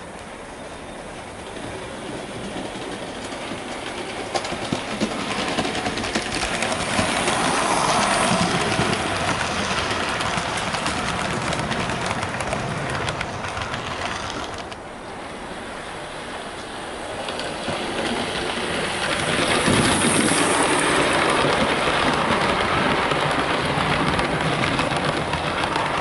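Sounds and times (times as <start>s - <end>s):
model train running on track: 0.0s - 26.0s
wheels clicking over rail joints: 0.0s - 26.0s.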